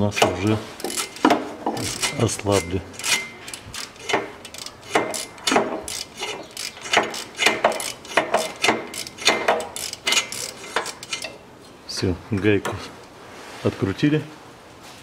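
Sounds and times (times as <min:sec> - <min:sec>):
ratchet wrench clicking: 0:00.1 - 0:11.4.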